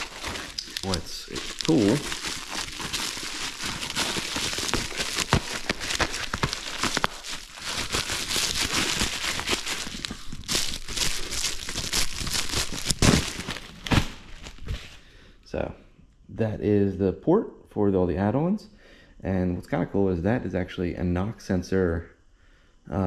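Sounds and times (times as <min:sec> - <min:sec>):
bubble wrap crinkling: 0:00.0 - 0:15.0.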